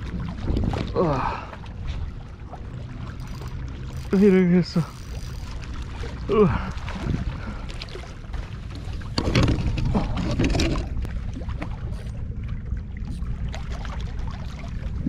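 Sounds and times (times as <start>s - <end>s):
steady low rumble: 0.0s - 15.0s
water sloshing and splashing: 0.0s - 15.0s.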